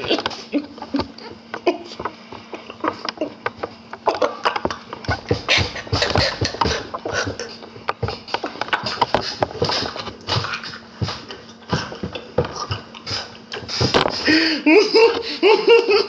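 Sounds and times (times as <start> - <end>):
young man laughing hard: 4.0 - 7.6, 13.8 - 16.0.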